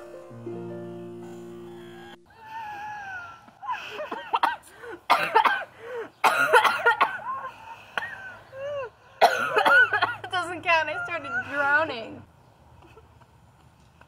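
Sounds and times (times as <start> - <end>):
woman coughing and spluttering: 4.1 - 7.2, 9.2 - 10.3.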